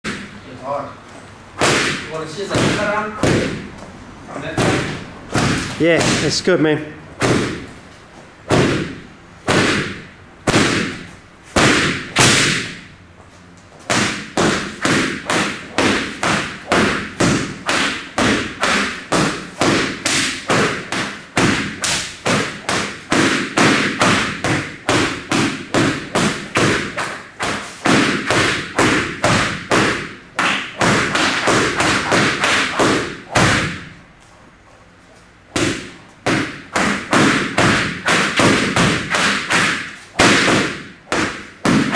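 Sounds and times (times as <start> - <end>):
whip slapping heavy bag: 8.5 - 12.8, 13.8 - 33.9, 35.6 - 41.9.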